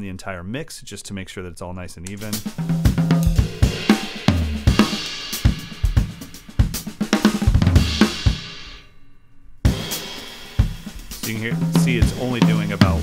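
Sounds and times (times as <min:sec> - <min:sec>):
drum kit groove: 0:02.1 - 0:08.8, 0:09.6 - 0:13.0.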